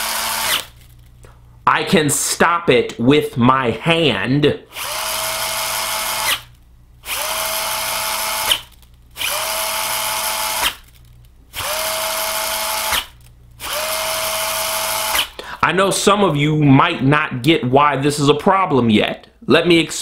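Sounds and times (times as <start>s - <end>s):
electric motor whirring: 0.0s - 0.8s, 4.7s - 10.9s, 11.5s - 15.4s.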